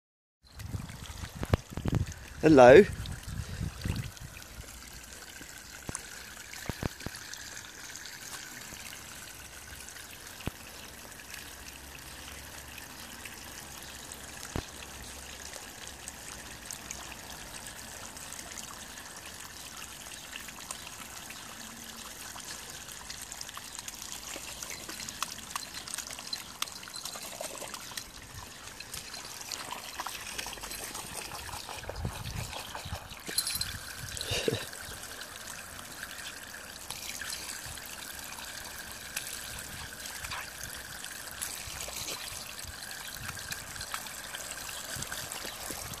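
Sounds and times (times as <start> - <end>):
water jet splashing on stone: 0.6 - 13.4, 15.4 - 46.0.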